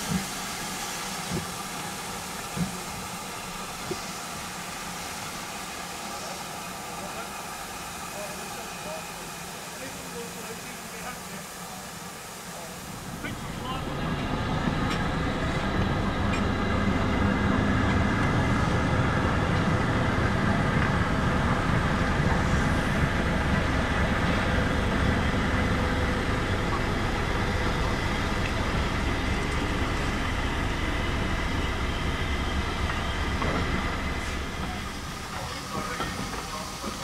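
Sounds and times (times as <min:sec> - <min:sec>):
steam hiss: 0:00.0 - 0:14.0, 0:33.2 - 0:37.0
train rumbling by: 0:00.0 - 0:37.0.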